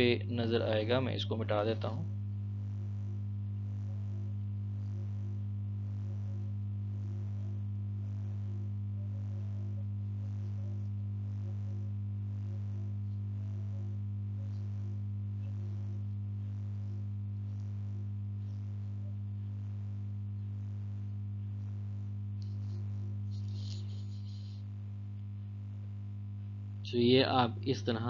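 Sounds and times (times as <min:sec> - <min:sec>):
electrical mains hum: 0:00.0 - 0:28.0.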